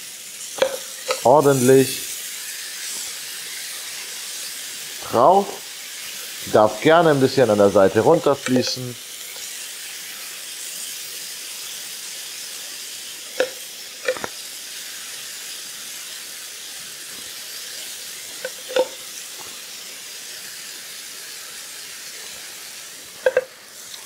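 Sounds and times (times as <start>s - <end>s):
meat sizzling in a frying pan: 0.0s - 24.0s
spoon clinking: 13.4s - 14.3s, 18.4s - 19.0s, 23.2s - 23.6s.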